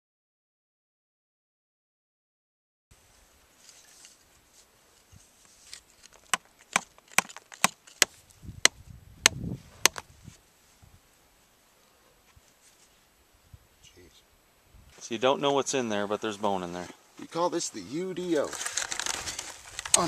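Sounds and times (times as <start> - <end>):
hand tool striking rock: 6.2 - 10.0.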